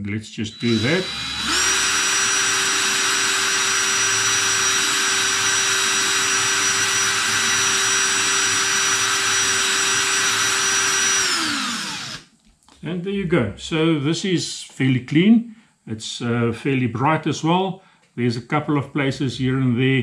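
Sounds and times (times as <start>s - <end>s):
cordless drill motor whining: 0.5s - 12.3s.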